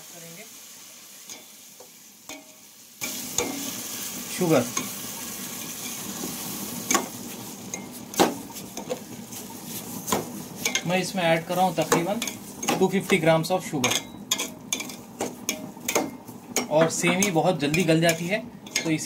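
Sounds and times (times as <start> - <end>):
sizzling: 0.0 - 19.0
spatula stirring in a pot: 1.2 - 19.0.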